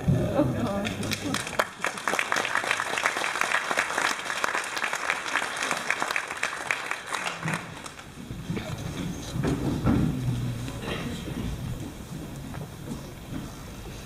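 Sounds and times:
audience applauding: 0:00.6 - 0:08.2.

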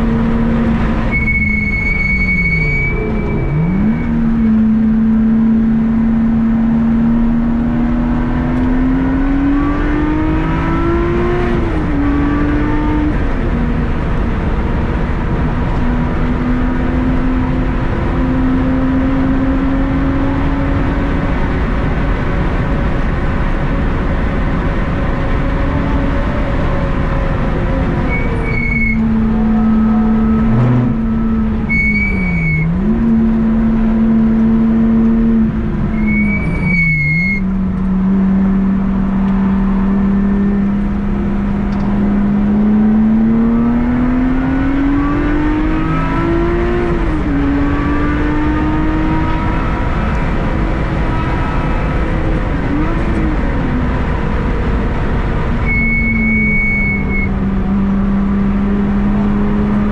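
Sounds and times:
car engine accelerating: 0:00.0 - 0:59.9
high-pitched squeals: 0:01.0 - 0:04.7, 0:27.7 - 0:33.0, 0:35.9 - 0:37.5, 0:55.5 - 0:57.4.

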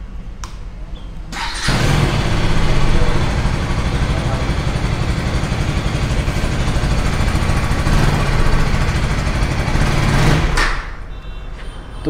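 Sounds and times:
motorcycle engine idling: 0:01.5 - 0:10.6.

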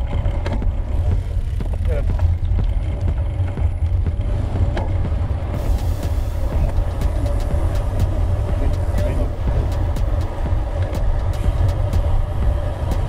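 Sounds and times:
bicycle clicks and rattles: 0:00.0 - 0:05.0
wind buffeting microphone: 0:00.0 - 0:13.0.

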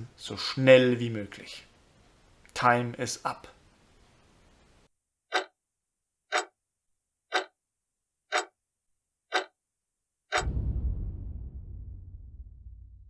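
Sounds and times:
clock ticking: 0:05.3 - 0:05.6, 0:06.3 - 0:06.6, 0:07.3 - 0:07.6, 0:08.3 - 0:08.6, 0:09.3 - 0:09.6, 0:10.3 - 0:10.5
deep boom: 0:10.4 - 0:13.0.

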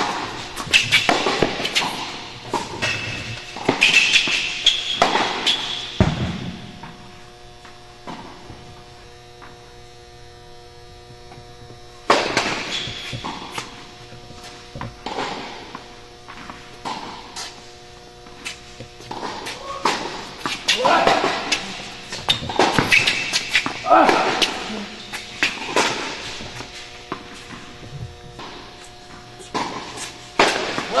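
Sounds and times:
tennis ball hits and bounces: 0:00.0 - 0:07.0, 0:18.8 - 0:31.0
electrical hum: 0:00.0 - 0:31.0.

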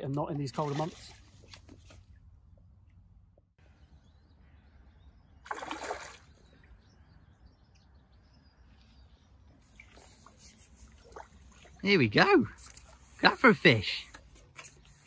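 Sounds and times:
faint outdoor background: 0:00.0 - 0:15.0
water splash: 0:05.5 - 0:06.4.

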